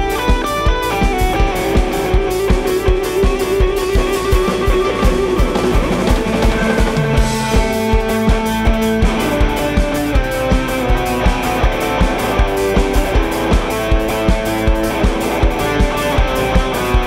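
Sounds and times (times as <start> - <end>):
electric guitar holding long notes: 0.0 - 17.0
steady drum beat: 0.0 - 17.0.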